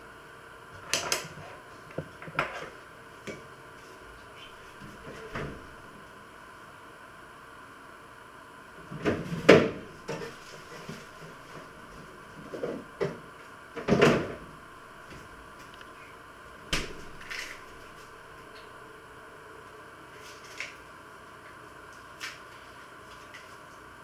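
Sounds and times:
faint steady hum: 0:00.0 - 0:24.0
kitchen knocks and clunks: 0:13.8 - 0:14.5.

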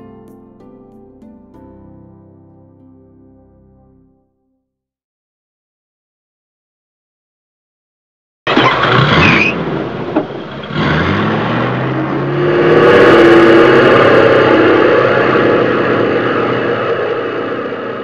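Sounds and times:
electric motor and propeller whine: 0:09.0 - 0:18.0.

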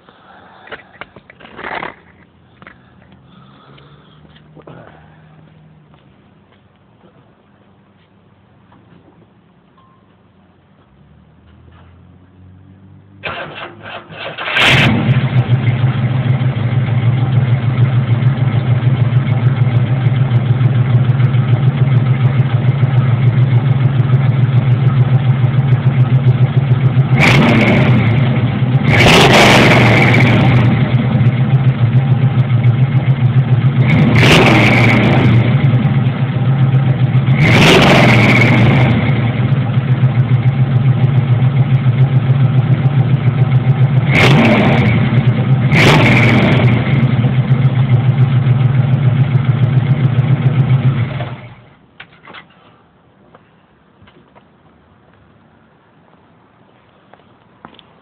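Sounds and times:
car engine exhaust idling and revving: 0:14.4 - 0:51.8.

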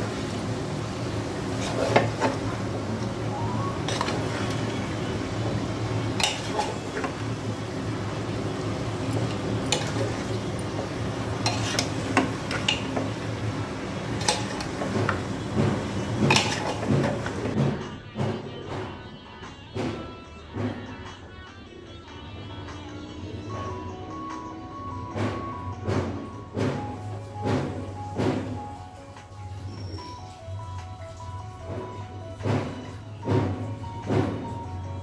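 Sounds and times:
meat sizzling: 0:00.0 - 0:17.6
metal spoon scraping pot: 0:06.2 - 0:07.2, 0:11.4 - 0:13.0, 0:16.0 - 0:17.4.

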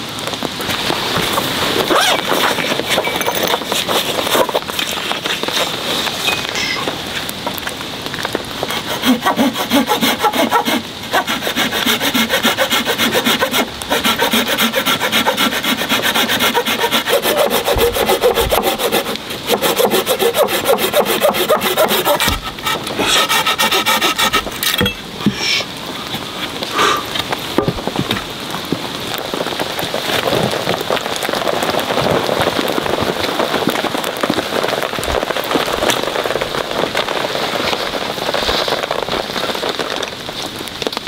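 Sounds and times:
hand saw cutting a branch: 0:01.2 - 0:06.1, 0:08.7 - 0:25.5.

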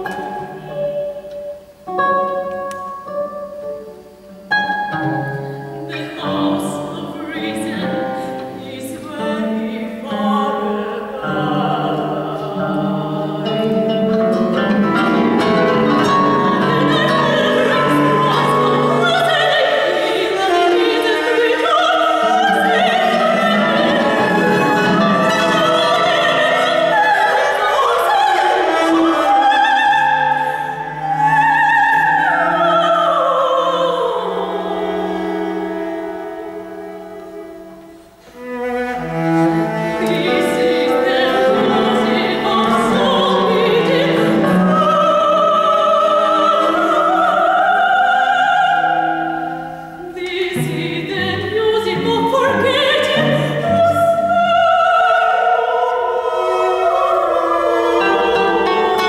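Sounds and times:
cello: 0:00.0 - 0:59.0
mezzo-soprano singing: 0:00.0 - 0:59.0.

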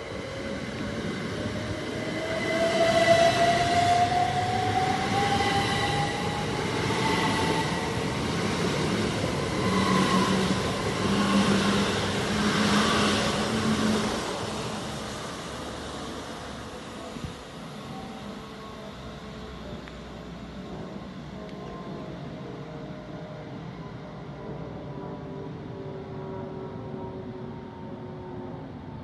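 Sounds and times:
train wheels on rails: 0:00.0 - 0:22.7.

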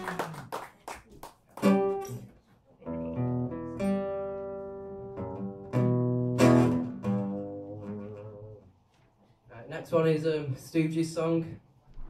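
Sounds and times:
acoustic guitar strumming: 0:01.6 - 0:02.2, 0:02.9 - 0:08.8.

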